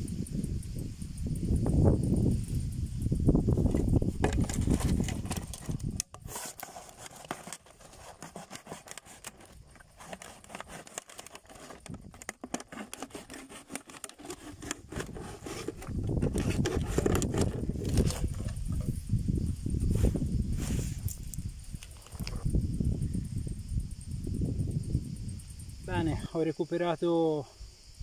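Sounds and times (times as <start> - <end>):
low rumbling handling noise: 3.4 - 20.2
knife cutting plastic bottle: 3.6 - 18.9.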